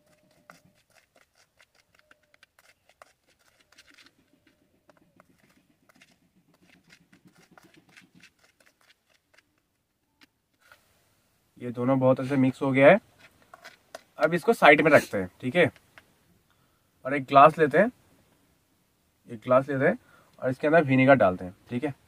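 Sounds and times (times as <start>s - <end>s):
metal spoon scraping plastic bowl: 0.0s - 9.6s, 12.2s - 15.2s.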